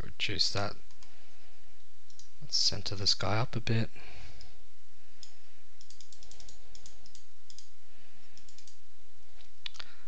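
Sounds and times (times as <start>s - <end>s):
low background hum: 0.0s - 10.0s
computer mouse clicking: 2.1s - 2.3s, 5.2s - 7.7s, 8.4s - 8.8s.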